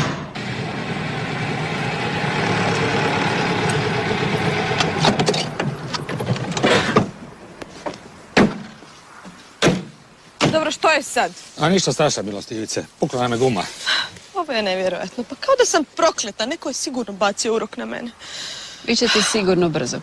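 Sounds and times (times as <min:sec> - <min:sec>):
car driving up and stopping: 0:00.0 - 0:07.4
car door thump: 0:09.6 - 0:10.6.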